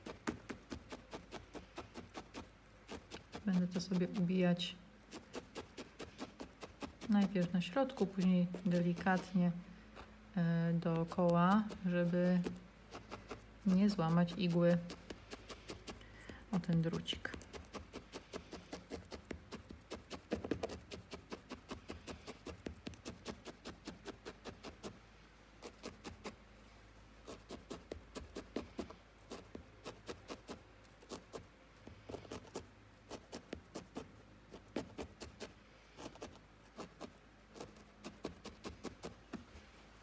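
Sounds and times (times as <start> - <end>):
felting needle poking wool: 0.0 - 25.0, 25.6 - 26.4, 27.2 - 39.7.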